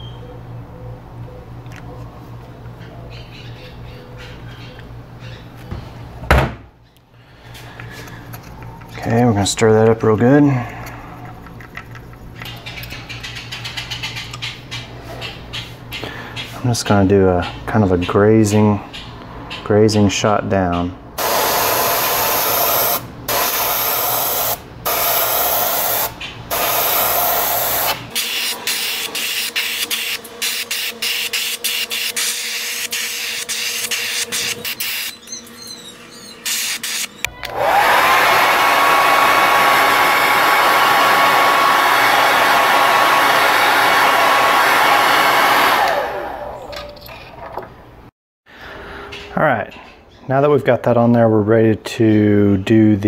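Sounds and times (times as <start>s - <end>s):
airbrush hissing: 21.2s - 35.1s, 36.4s - 37.1s.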